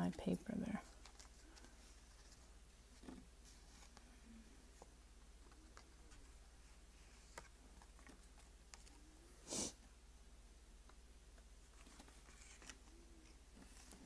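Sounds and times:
rustling of cardstock: 0.2 - 9.1, 11.7 - 14.0.

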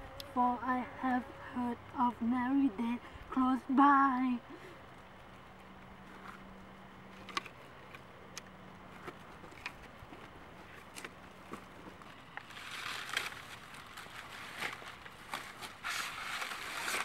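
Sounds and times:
dry cornstalks crackling underfoot: 8.9 - 17.0.

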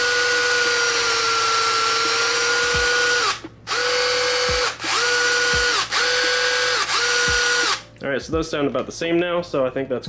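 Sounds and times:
electric motors whining: 0.0 - 7.8.

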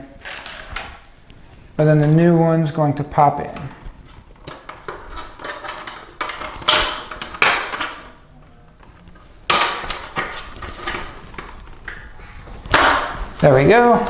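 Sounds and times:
plastic rubbing and scraping: 0.1 - 2.8, 3.4 - 14.0.

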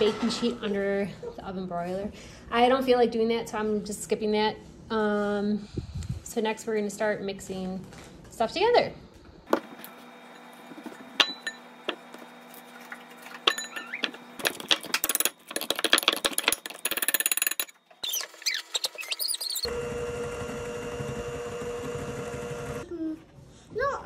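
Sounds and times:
electric hand mixer humming: 9.5 - 14.6, 19.6 - 22.8.

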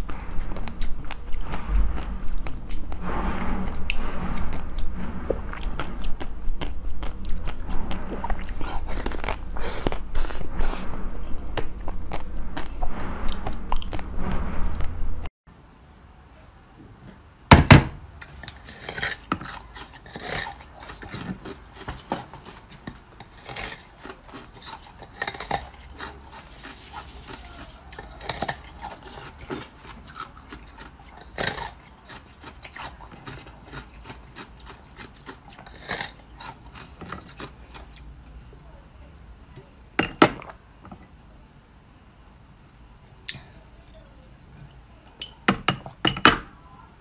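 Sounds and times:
loud knock: 17.5 - 18.0.

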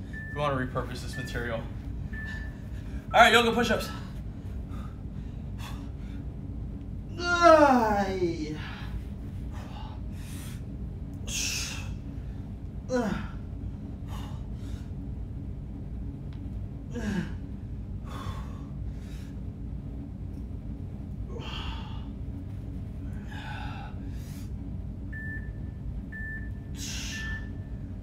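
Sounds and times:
low room hum: 0.0 - 28.0
man breathing hard: 3.8 - 6.4, 8.6 - 15.0, 16.9 - 19.5, 21.3 - 22.3, 23.0 - 24.7.

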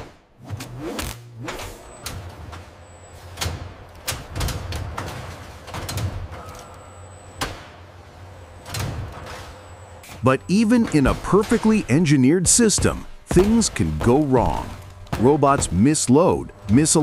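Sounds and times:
machinery low hum: 5.2 - 17.0.

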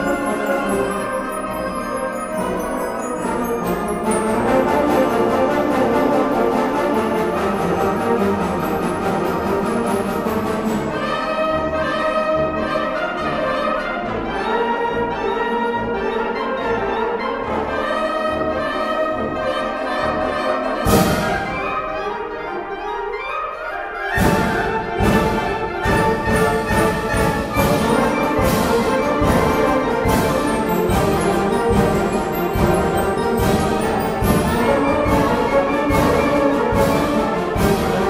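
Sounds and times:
concert wind band playing: 0.0 - 38.0
percussion strikes: 20.8 - 21.9, 24.2 - 38.0.

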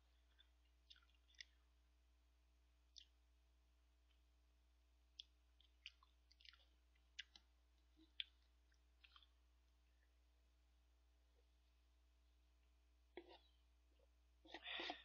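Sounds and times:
chewing: 0.1 - 1.6, 5.2 - 9.4.

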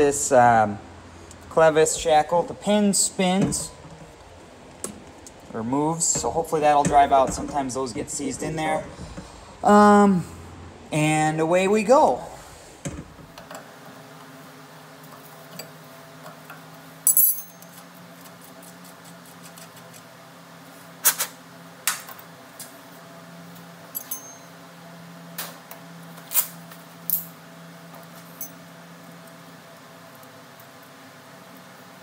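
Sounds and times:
steady low hum: 0.0 - 32.0
wrench and metal fittings clinking: 17.1 - 17.8, 23.9 - 24.5.

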